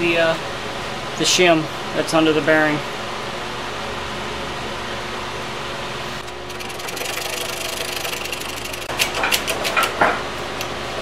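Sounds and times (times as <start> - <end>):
press pump fast mechanical ticking: 6.2 - 9.7.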